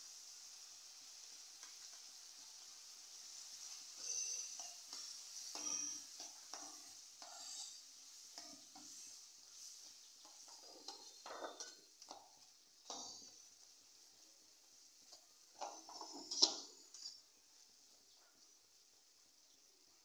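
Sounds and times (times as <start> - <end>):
food sizzling: 0.0 - 20.0
spatula scraping a pan: 3.5 - 13.7, 15.1 - 17.2.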